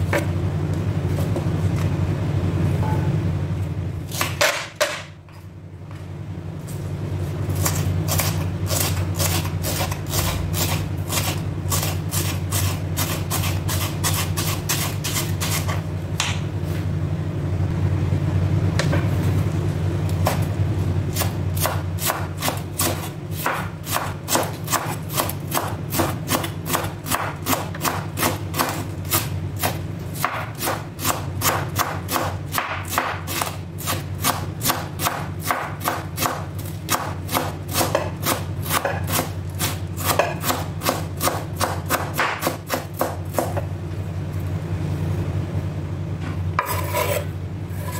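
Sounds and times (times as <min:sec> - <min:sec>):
steady low hum: 0:00.0 - 0:47.9
knife chopping on wooden board: 0:04.1 - 0:05.1, 0:21.2 - 0:43.6.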